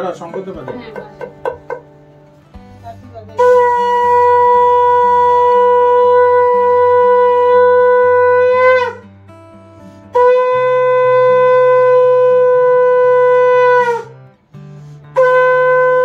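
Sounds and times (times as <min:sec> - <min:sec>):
conch shell blasts: 0:03.4 - 0:09.0, 0:10.1 - 0:14.2, 0:15.1 - 0:16.0.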